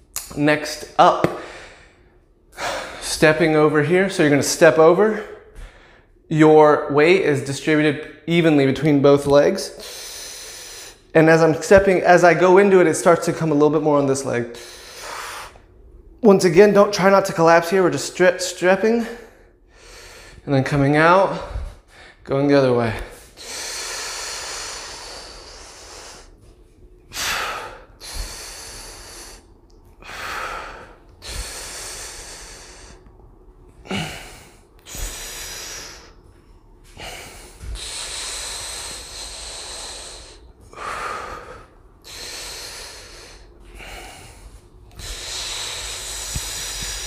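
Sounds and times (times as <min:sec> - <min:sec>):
man breathing slowly: 0:01.2 - 0:03.1, 0:05.1 - 0:06.3, 0:09.7 - 0:11.1, 0:14.5 - 0:15.9, 0:19.0 - 0:20.4, 0:21.1 - 0:22.3, 0:22.9 - 0:47.0.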